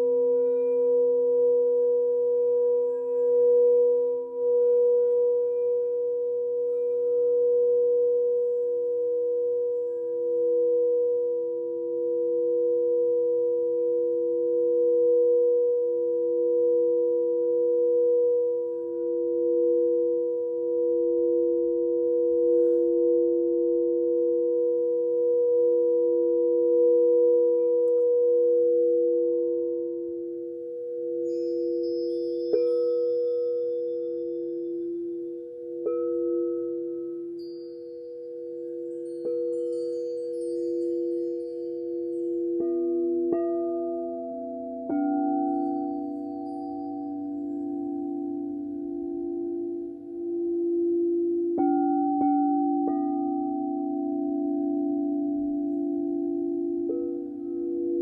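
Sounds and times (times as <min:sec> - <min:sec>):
singing bowls ringing: 0:00.0 - 0:58.0.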